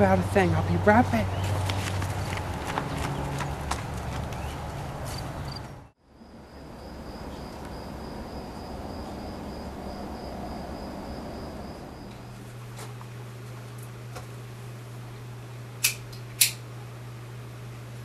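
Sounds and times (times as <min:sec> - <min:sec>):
footsteps: 0:01.4 - 0:05.6, 0:12.1 - 0:14.3
crickets trilling: 0:05.4 - 0:12.4
night ambience hiss: 0:05.5 - 0:18.0.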